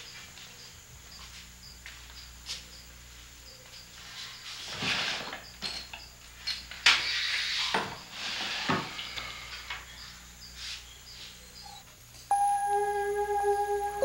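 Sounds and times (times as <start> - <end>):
faint insect chirps: 0.0 - 8.1, 8.8 - 14.0
rustling and scraping: 4.0 - 9.7.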